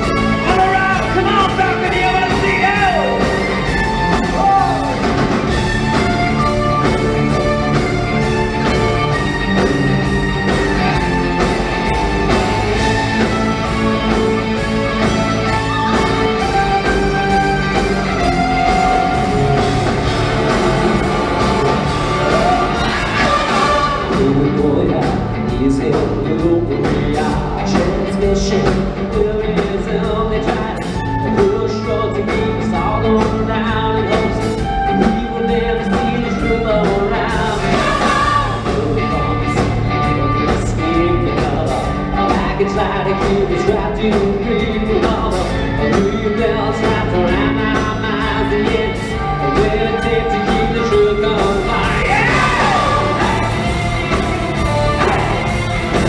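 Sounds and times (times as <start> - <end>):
rock band with orchestra: 0.0 - 56.0
sung vocals: 19.6 - 54.2.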